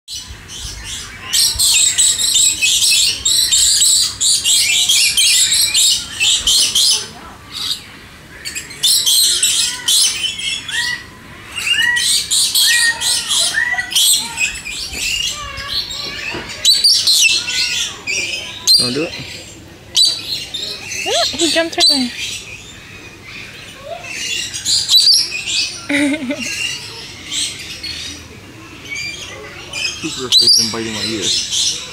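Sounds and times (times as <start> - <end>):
birds chirping: 0.1 - 31.9.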